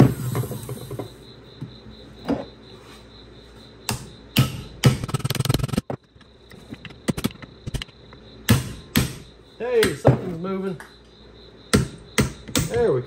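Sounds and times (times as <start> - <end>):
hammer striking chisel on metal: 3.9 - 5.0, 8.5 - 10.0, 11.7 - 12.8.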